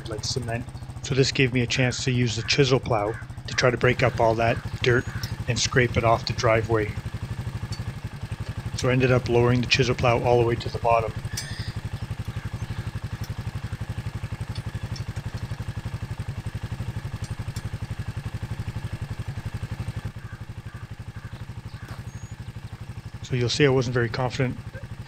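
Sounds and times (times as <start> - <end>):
atv engine idling: 0.0 - 25.0
faint metal clinks: 7.6 - 8.0, 11.3 - 12.3.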